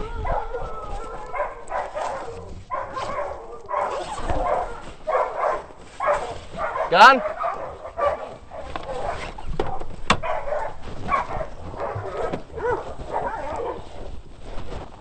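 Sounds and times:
dogs barking and whining: 0:00.0 - 0:14.2.

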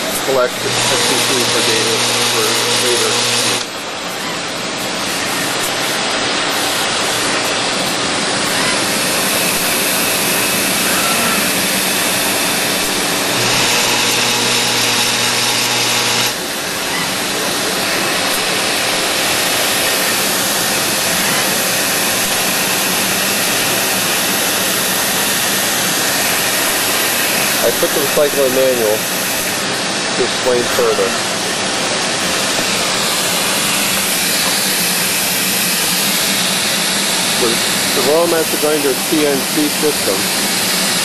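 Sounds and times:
grinding machine hiss: 0:00.0 - 0:41.0
low machine hum: 0:00.0 - 0:41.0.

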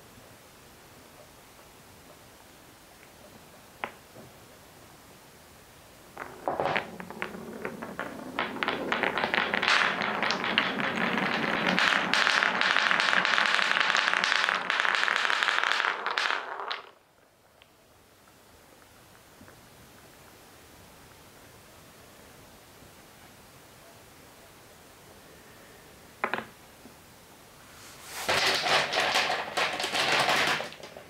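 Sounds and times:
wooden balls clattering on track: 0:06.2 - 0:17.2, 0:26.2 - 0:26.6, 0:28.2 - 0:31.0.

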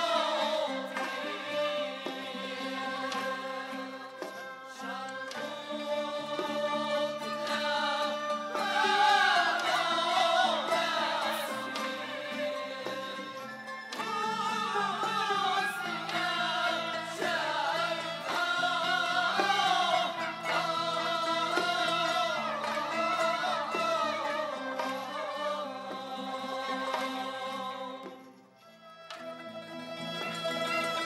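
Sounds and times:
male choir singing in unison: 0:00.0 - 0:28.4
traditional instrumental ensemble: 0:00.0 - 0:31.0.

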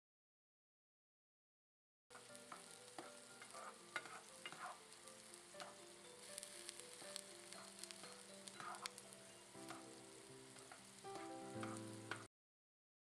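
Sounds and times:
vegetables sizzling in a skillet: 0:02.1 - 0:12.3
spatula clicking against pan: 0:02.2 - 0:04.9, 0:05.6 - 0:05.8, 0:06.7 - 0:09.9, 0:10.6 - 0:12.3.

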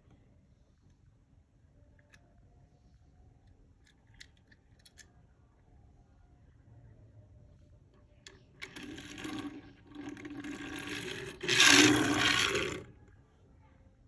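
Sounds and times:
rubbing scraping noises: 0:08.9 - 0:12.9.

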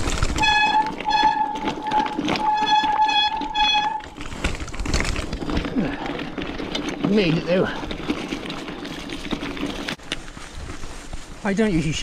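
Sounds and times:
bike rattling over rocky trail: 0:00.0 - 0:12.0
bike disc brakes squealing: 0:00.4 - 0:04.2.

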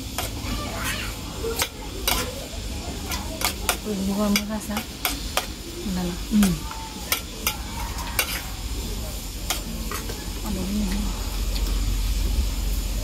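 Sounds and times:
spoons clinking on metal bowls: 0:01.5 - 0:02.4, 0:03.0 - 0:05.6, 0:06.4 - 0:08.6, 0:09.5 - 0:10.2.

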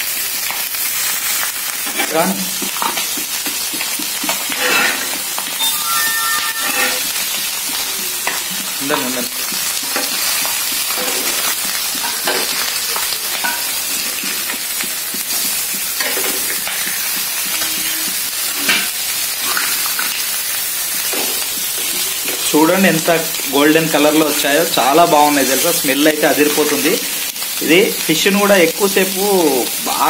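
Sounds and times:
fish sizzling in oil: 0:00.0 - 0:30.0
steel spatula scraping griddle: 0:04.3 - 0:07.5.

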